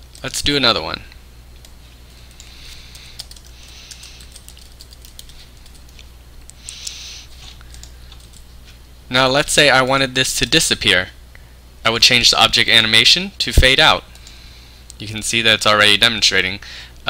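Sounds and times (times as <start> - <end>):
low steady hum: 0.0 - 17.0
keyboard typing: 1.6 - 7.0, 7.6 - 8.4.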